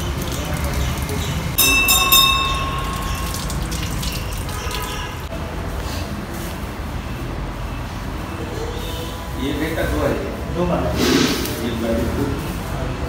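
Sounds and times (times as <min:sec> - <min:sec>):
water running from tap: 0:00.0 - 0:05.3
metallic bell ring: 0:01.6 - 0:04.2.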